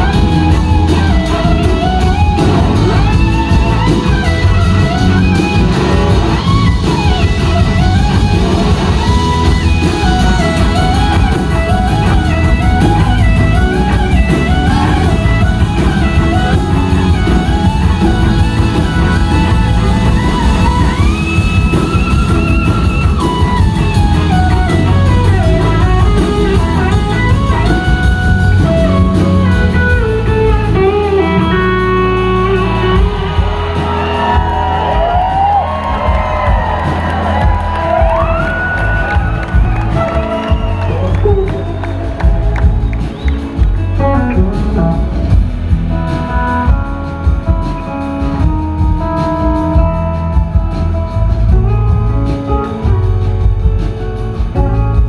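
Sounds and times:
electric slide guitar solo: 0:00.0 - 0:35.6, 0:37.9 - 0:42.8, 0:43.4 - 0:46.8
bass guitar: 0:00.0 - 0:55.0
drums: 0:00.0 - 0:55.0.

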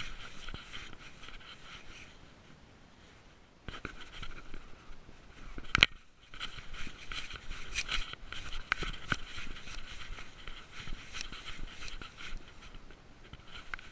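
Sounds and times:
camera handling noise: 0:05.6 - 0:13.9.

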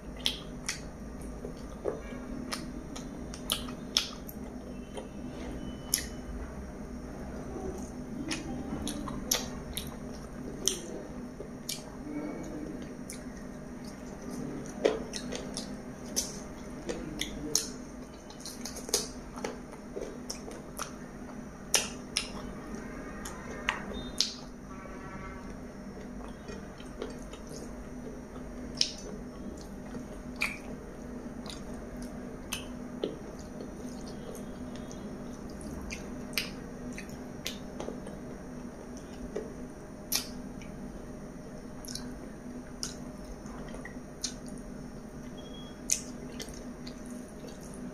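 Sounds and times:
faint steady hum: 0:00.0 - 0:47.9
person chewing with mouth smacks: 0:00.1 - 0:05.2, 0:07.4 - 0:22.6, 0:25.5 - 0:40.8, 0:41.7 - 0:47.9
sharp mouth clicks: 0:28.4 - 0:30.8, 0:40.1 - 0:40.8, 0:41.8 - 0:43.1, 0:45.4 - 0:47.9.

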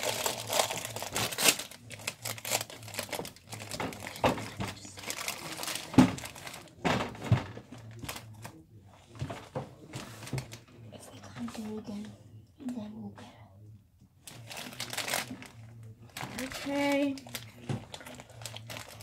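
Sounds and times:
plastic packet crinkling: 0:00.0 - 0:06.9, 0:14.2 - 0:19.0.

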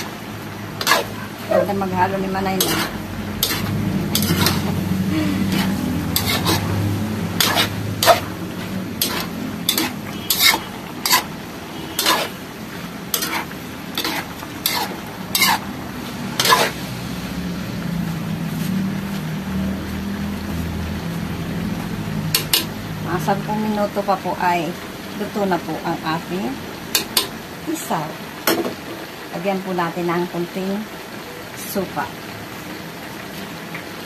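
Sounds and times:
spatula scraping a wok: 0:00.0 - 0:16.9, 0:22.2 - 0:22.8, 0:26.9 - 0:27.4
food sizzling: 0:00.0 - 0:34.0.

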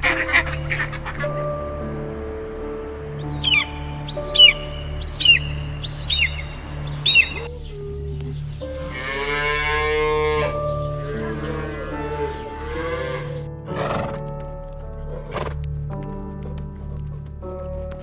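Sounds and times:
bird calling: 0:00.0 - 0:01.8, 0:02.8 - 0:09.0
cattle mooing: 0:08.8 - 0:13.4.

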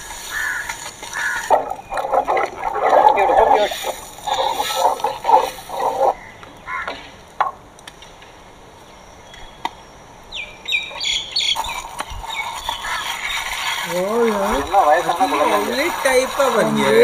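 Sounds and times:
birds chirping: 0:00.0 - 0:07.3, 0:08.4 - 0:17.0
person speaking: 0:13.8 - 0:17.0.

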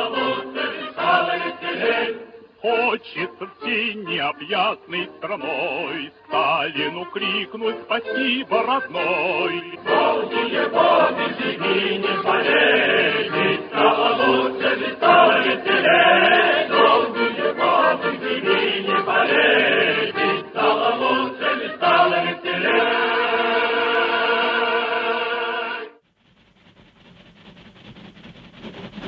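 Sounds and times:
choir singing: 0:00.0 - 0:26.0.

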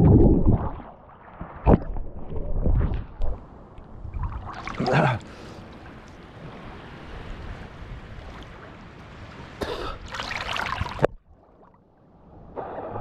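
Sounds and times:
rush of water: 0:03.4 - 0:11.7
seawater sloshing and splashing: 0:04.1 - 0:11.8.

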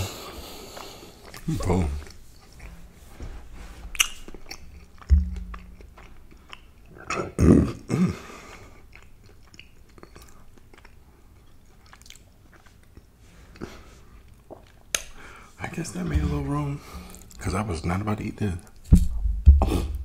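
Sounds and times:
close chewing mouth clicks: 0:00.6 - 0:02.7, 0:03.9 - 0:07.2, 0:08.4 - 0:15.2
low thump: 0:05.1 - 0:06.1, 0:18.9 - 0:20.0.

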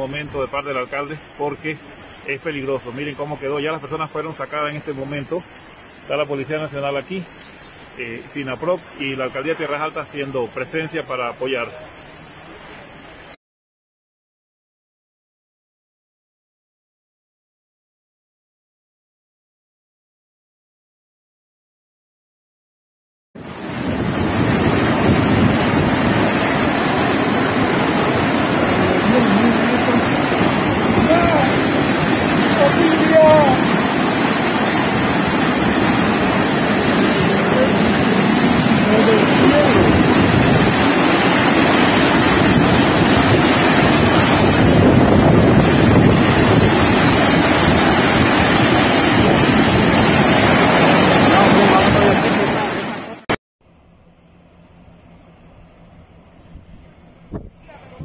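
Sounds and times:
rushing floodwater: 0:00.0 - 0:13.4, 0:23.4 - 0:53.4.

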